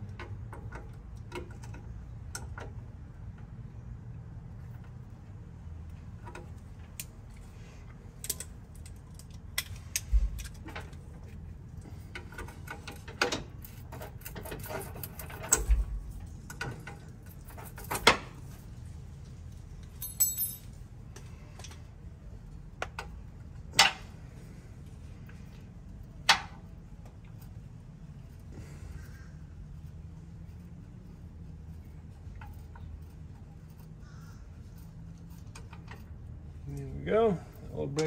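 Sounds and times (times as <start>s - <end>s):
wrench clinking on metal fittings: 19.8s - 20.8s.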